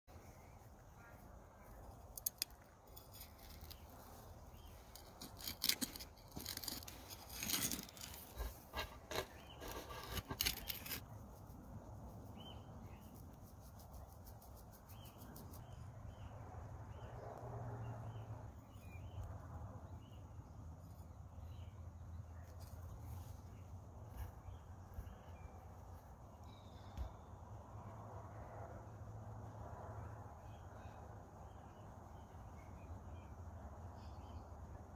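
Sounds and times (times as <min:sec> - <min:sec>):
faint low hum: 0:00.1 - 0:34.9
metal trowel scraping gravelly soil: 0:02.2 - 0:11.1.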